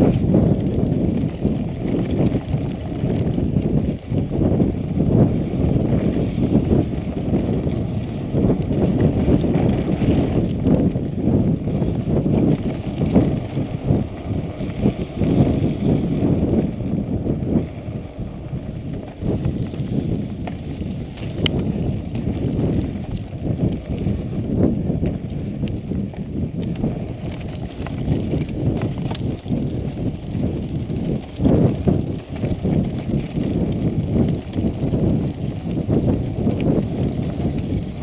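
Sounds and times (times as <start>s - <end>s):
bike rattling over bumps: 0.0s - 38.0s
bike tyres rumbling on dirt: 0.0s - 38.0s.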